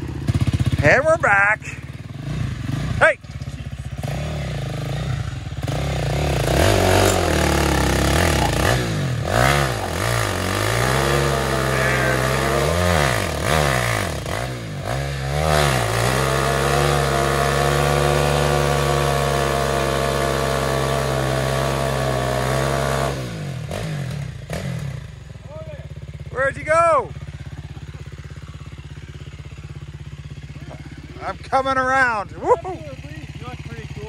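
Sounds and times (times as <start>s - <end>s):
atv engine revving hard: 0.0s - 34.0s
tires spinning on plywood: 5.6s - 23.9s.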